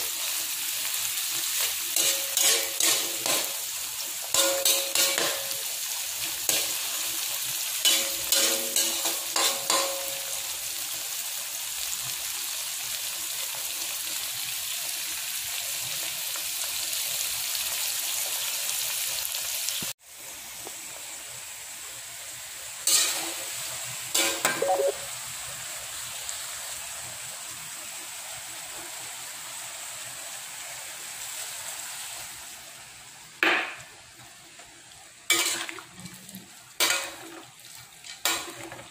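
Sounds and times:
oil sizzling in a wok: 0.0 - 38.9
spatula scraping a pan: 1.4 - 3.7, 7.8 - 10.1, 35.3 - 36.2.

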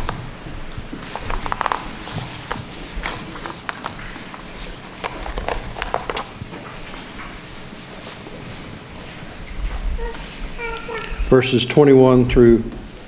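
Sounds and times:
footsteps: 0.0 - 11.2
pages turning: 0.8 - 7.1.

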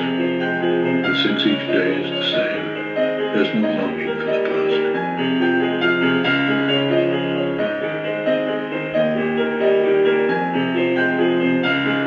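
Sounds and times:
soft piano chords: 0.0 - 12.0.

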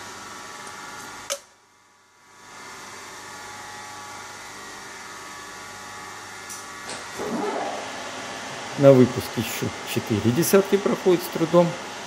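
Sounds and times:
fan-like mechanical hum: 0.0 - 12.0.

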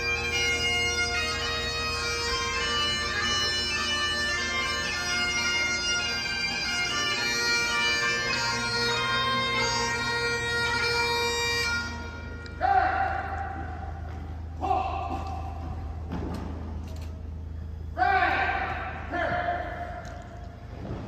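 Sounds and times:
bagpipes playing over drone: 0.0 - 12.6.

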